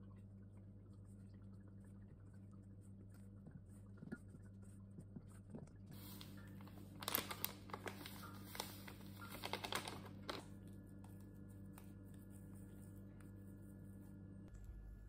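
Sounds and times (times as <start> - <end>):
foil sachet crinkling: 5.9 - 10.8.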